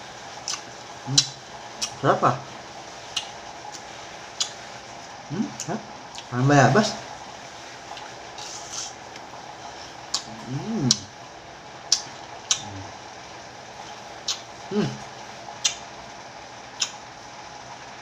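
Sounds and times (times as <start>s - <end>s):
mouth clicks and smacks: 0.5s - 2.0s, 3.1s - 4.6s, 10.1s - 11.1s, 11.9s - 12.9s, 13.9s - 15.0s, 15.6s - 15.9s, 16.8s - 17.0s
person humming: 5.3s - 5.8s, 10.2s - 11.1s, 12.5s - 12.9s, 14.7s - 15.0s.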